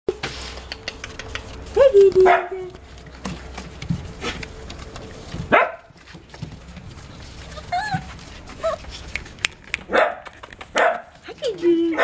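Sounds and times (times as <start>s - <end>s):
puppies moving on newspaper: 0.1s - 12.0s
puppies whining and yelping: 7.3s - 9.0s.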